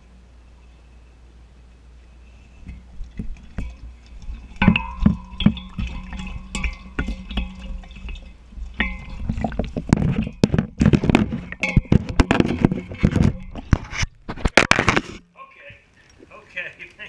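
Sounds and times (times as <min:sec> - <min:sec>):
dogs lapping water: 0:02.6 - 0:13.8.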